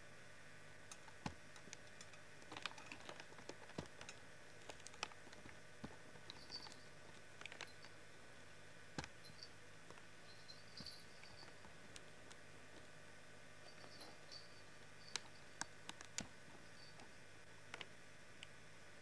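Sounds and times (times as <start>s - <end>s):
background hiss and hum: 0.0s - 19.0s
faint clicks and taps: 0.9s - 8.0s, 9.0s - 10.1s, 14.8s - 17.1s, 17.7s - 18.6s.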